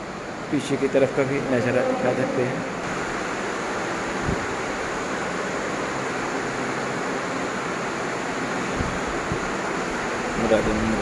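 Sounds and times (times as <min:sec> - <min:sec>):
wind rushing on microphone: 0:04.2 - 0:04.7, 0:08.7 - 0:11.0.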